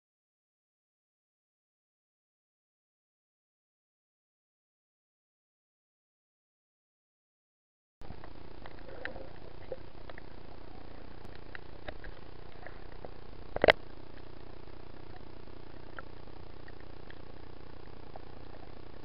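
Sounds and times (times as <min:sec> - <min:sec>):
faint clicks and crackles: 0:08.0 - 0:19.0.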